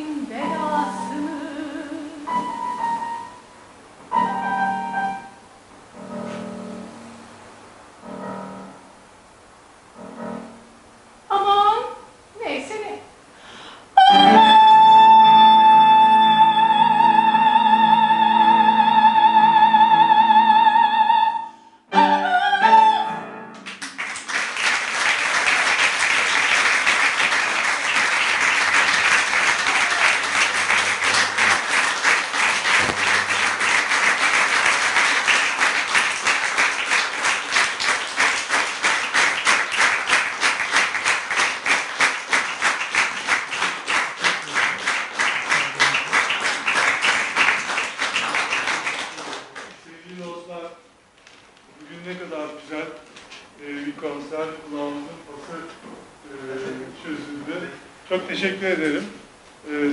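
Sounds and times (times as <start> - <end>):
soprano singing with vibrato: 0.0 - 3.0, 14.0 - 23.4
piano accompaniment: 0.0 - 7.3, 8.0 - 9.0, 10.0 - 10.8
audience applause: 23.6 - 49.8
rhythmic clapping: 23.6 - 49.8.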